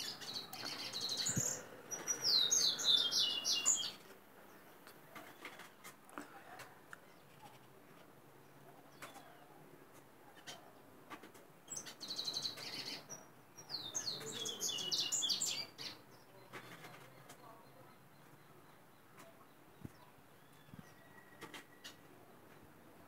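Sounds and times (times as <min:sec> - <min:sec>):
bird twittering song: 0:00.0 - 0:05.5, 0:11.6 - 0:22.8.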